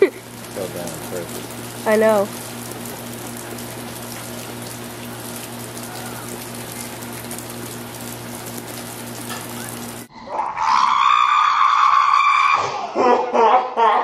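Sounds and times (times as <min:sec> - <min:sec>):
steady rain: 0:00.0 - 0:10.1
child screaming: 0:10.3 - 0:13.0.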